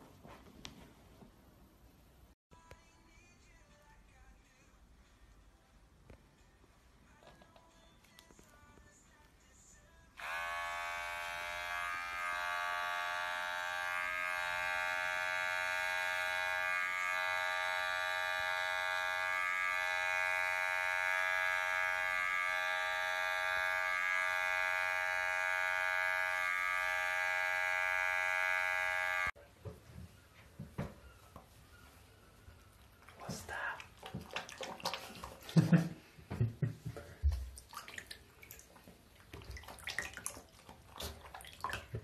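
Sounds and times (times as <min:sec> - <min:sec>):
electric clippers buzzing: 0:10.2 - 0:29.4.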